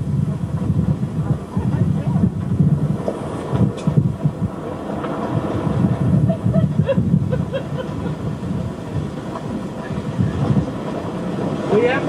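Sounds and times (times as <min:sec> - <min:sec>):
vehicle rumbling and rattling: 0:00.0 - 0:12.0
wind on microphone: 0:00.0 - 0:12.0.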